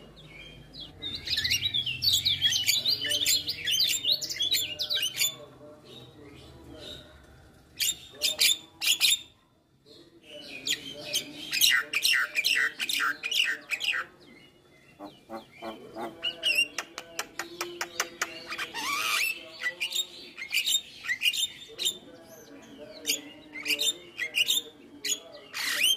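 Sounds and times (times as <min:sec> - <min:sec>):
bird singing: 0:00.0 - 0:07.2, 0:07.8 - 0:25.9
bird clicks: 0:16.8 - 0:18.4.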